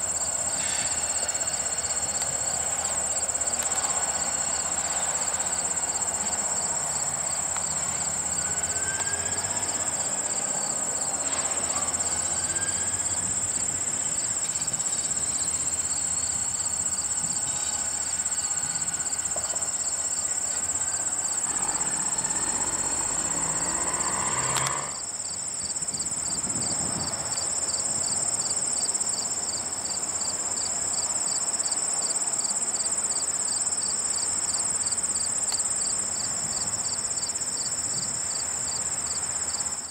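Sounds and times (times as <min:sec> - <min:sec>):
diesel locomotives idling: 0:00.0 - 0:23.8
insects chirping: 0:00.0 - 0:39.9
pulsing insect trill: 0:00.0 - 0:39.9.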